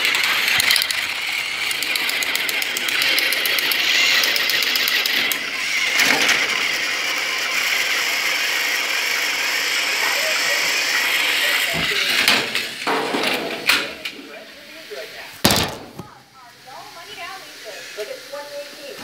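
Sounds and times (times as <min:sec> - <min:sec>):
gear rattle: 0:00.0 - 0:05.4
toy train motor whirring: 0:00.0 - 0:12.9, 0:14.3 - 0:15.4, 0:16.4 - 0:19.0.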